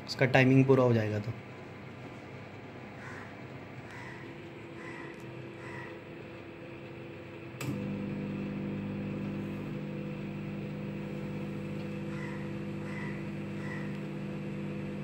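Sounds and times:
microwave oven humming: 0.0s - 15.0s
microwave click: 7.6s - 15.0s.

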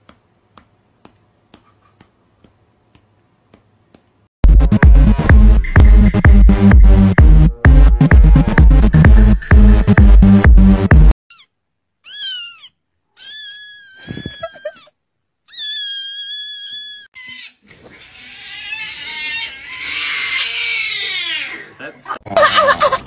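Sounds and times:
cat screaming cry: 11.3s - 14.9s, 15.5s - 21.6s
cats meowing: 11.3s - 14.9s.

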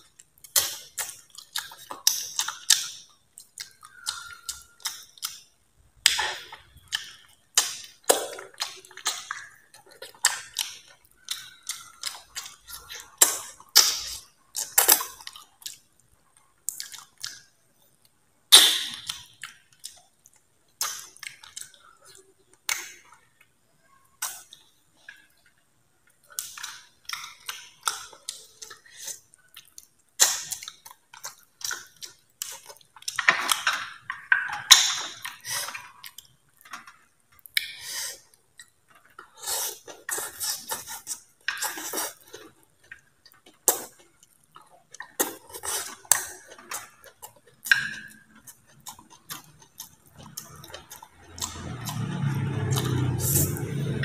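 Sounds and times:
chewing and slurping noodles: 37.5s - 54.0s.

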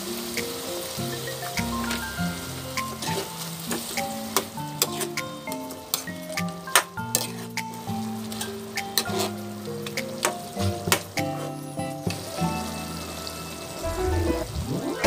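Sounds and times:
background music: 0.0s - 15.0s
food sizzling in a pan: 0.0s - 15.0s
spatula scraping a wok: 4.8s - 5.2s, 7.1s - 7.6s, 8.3s - 9.4s.

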